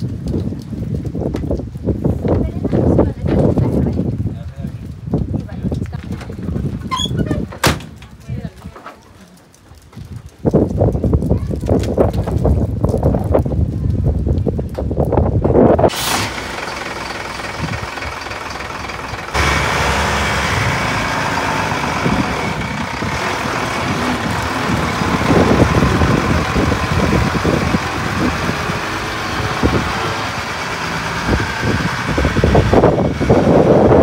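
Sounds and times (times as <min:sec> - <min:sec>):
diesel truck engine running: 0:15.8 - 0:34.0.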